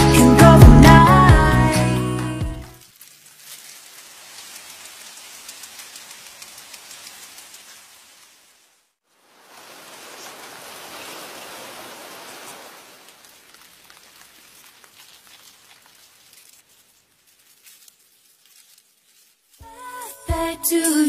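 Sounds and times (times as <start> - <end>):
faint outdoor ambient hiss: 2.8 - 21.0.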